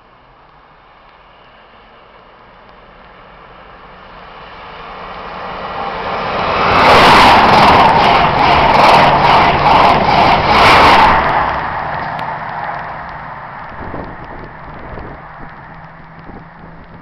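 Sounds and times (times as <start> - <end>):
train passing at speed: 0.0 - 17.0
regular beat of train wheels: 5.0 - 12.1.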